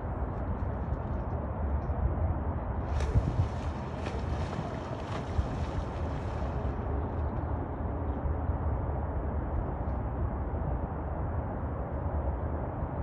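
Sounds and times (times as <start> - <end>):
wind buffeting microphone: 2.7 - 8.0
animal splashing in water: 2.8 - 6.8.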